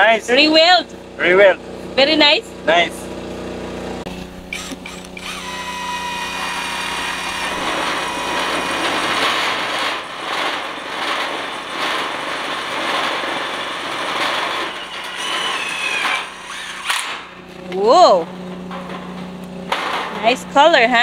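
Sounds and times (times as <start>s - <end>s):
cordless drill driving screw into metal: 4.5s - 10.1s, 14.5s - 17.3s.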